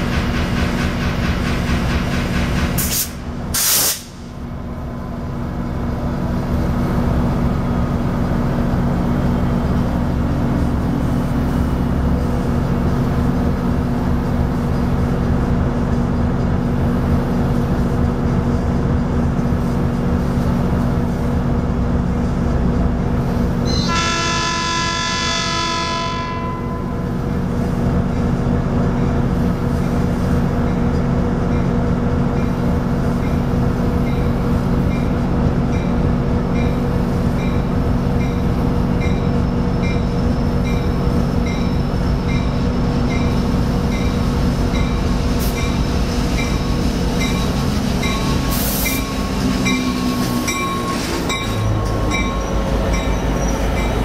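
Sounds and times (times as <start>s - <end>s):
diesel locomotive engine running: 0.0s - 54.0s
air hiss: 2.8s - 4.3s
train horn blast: 23.7s - 27.1s
locomotive bell ringing: 33.3s - 54.0s.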